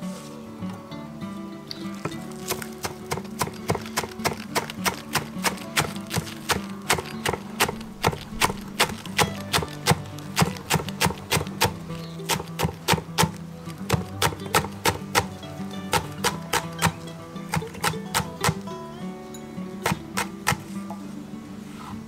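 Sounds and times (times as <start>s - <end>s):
soft background music: 0.0s - 22.0s
knife chopping on wooden board: 2.0s - 18.6s, 19.8s - 20.7s.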